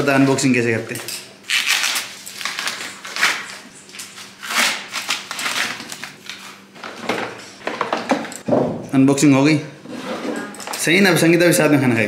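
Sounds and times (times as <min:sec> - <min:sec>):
plastic bag crinkling and tearing: 0:01.5 - 0:06.7.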